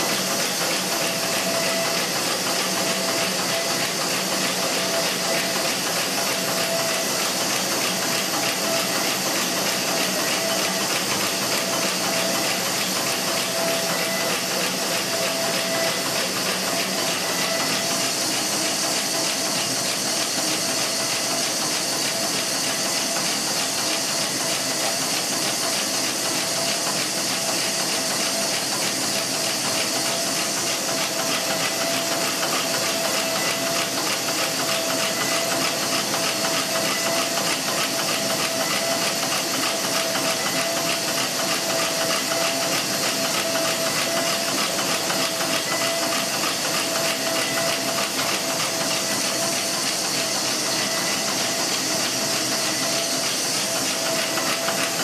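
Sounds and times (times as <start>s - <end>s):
band saw whirring: 0.0s - 55.0s.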